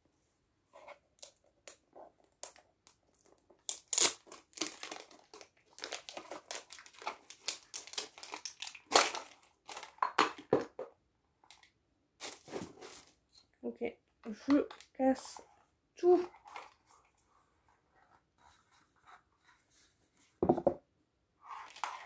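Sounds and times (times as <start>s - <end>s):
cardboard box crinkling: 4.1s - 10.0s.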